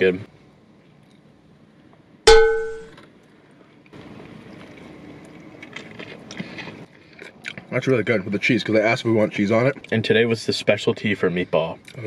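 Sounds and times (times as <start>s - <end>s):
metallic bell ding: 2.3s - 2.9s.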